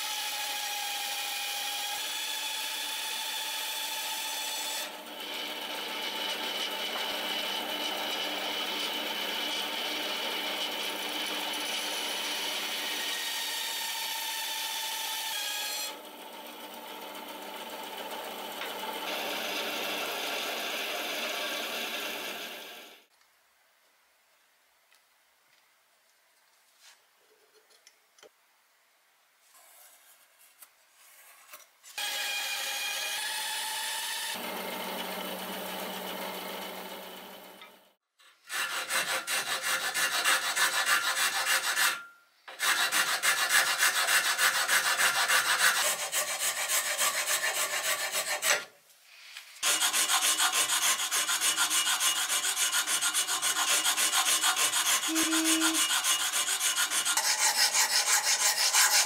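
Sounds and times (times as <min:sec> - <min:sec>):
hand file rasping: 0:38.4 - 0:48.7, 0:49.6 - 0:59.0.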